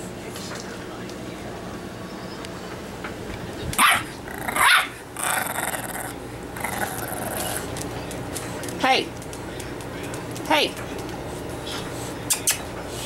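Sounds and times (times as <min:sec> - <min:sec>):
puppy barking: 0:03.8 - 0:05.0.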